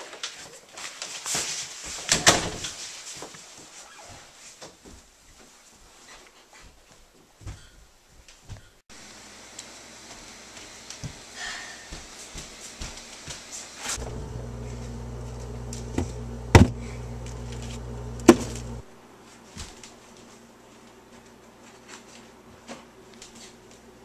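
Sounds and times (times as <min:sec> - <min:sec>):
low electrical hum: 0:13.8 - 0:24.0.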